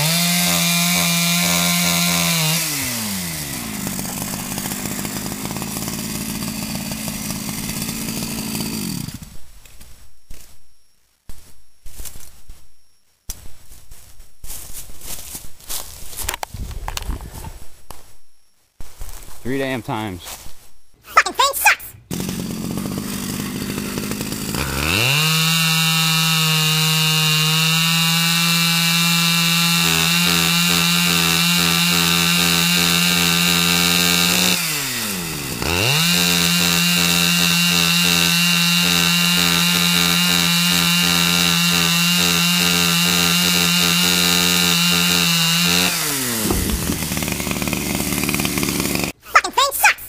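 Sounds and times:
chainsaw engine revving: 0:00.0 - 0:09.3, 0:22.1 - 0:49.2.

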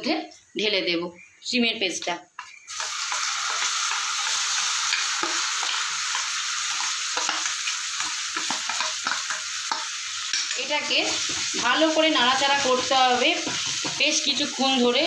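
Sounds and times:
oil sizzling in a pan: 0:02.4 - 0:15.0
spoon scraping steel bowl: 0:12.7 - 0:14.5.

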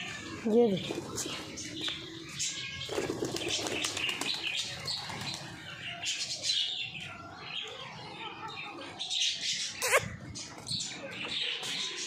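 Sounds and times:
pigeon wings flapping: 0:02.9 - 0:05.4.

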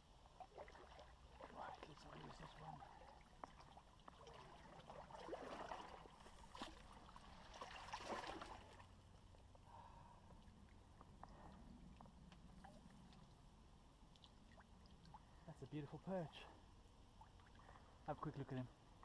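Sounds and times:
faint splashing of river water: 0:00.0 - 0:19.0.

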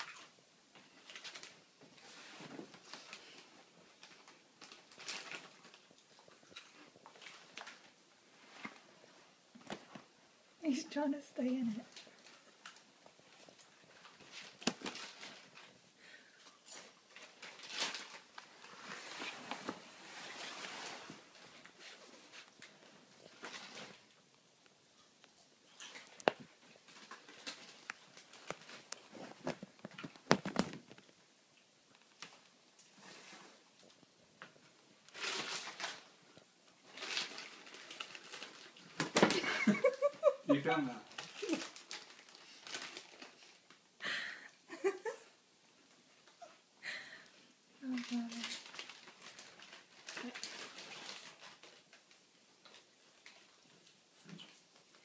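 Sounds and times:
fabric tunnel rustling and crinkling: 0:00.8 - 0:24.1, 0:25.8 - 0:31.2, 0:32.1 - 0:43.7, 0:47.8 - 0:55.0
fabric tunnel rustling: 0:17.1 - 0:24.0.

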